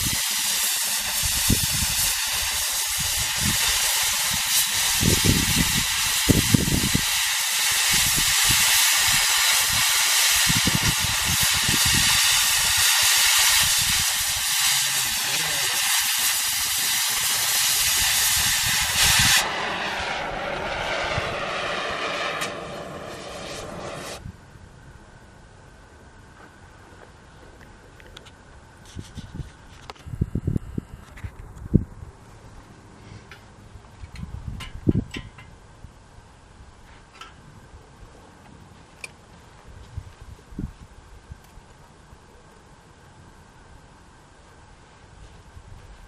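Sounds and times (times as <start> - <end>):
cutting torch hissing: 0.0 - 24.2.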